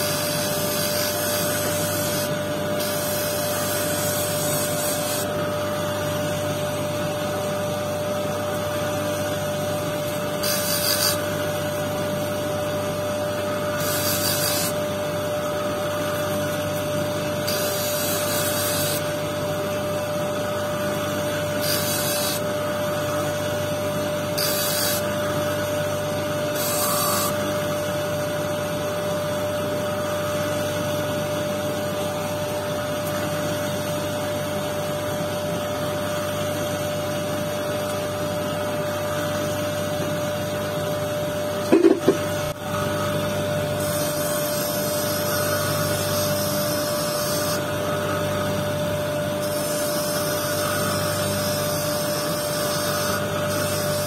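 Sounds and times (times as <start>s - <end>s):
stone grinding hiss: 0.0s - 5.3s, 10.4s - 11.4s, 13.6s - 14.8s, 17.4s - 19.0s, 21.5s - 22.4s, 24.4s - 25.1s, 26.5s - 27.4s
grinding disc motor hum: 0.0s - 54.0s.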